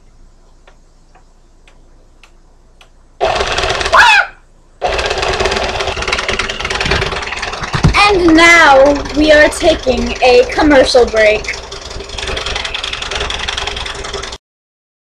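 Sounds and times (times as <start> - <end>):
electric stand mixer whirring: 3.2 - 3.9, 4.8 - 8.0, 11.4 - 14.4.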